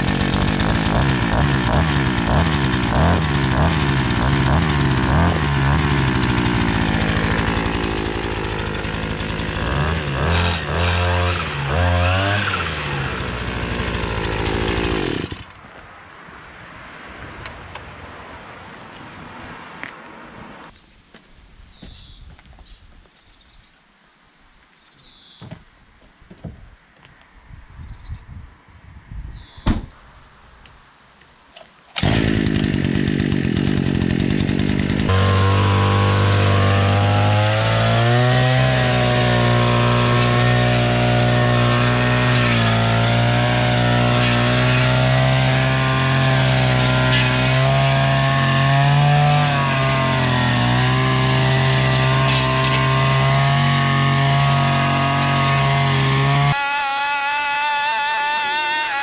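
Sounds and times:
brushcutter engine revving: 0:00.0 - 0:15.6, 0:32.0 - 0:59.0.

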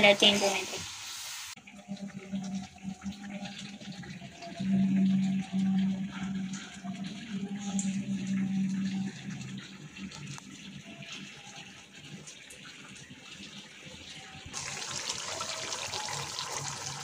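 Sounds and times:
chicken sizzling in hot oil: 0:00.0 - 0:02.0, 0:14.5 - 0:17.0
low hum: 0:01.6 - 0:10.9.

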